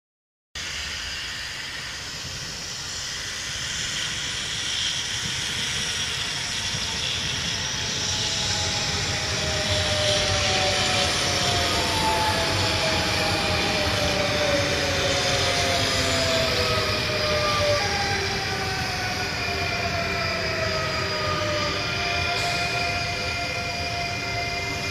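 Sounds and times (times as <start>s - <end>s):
electric train running on tracks: 0.6s - 24.9s
train whine falling in pitch: 0.6s - 24.9s.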